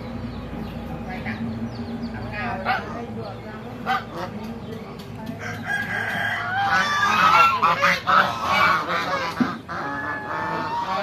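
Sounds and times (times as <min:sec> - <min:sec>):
geese honking: 0:02.4 - 0:03.1, 0:03.8 - 0:04.4, 0:05.4 - 0:11.0
rooster crowing: 0:05.4 - 0:07.6.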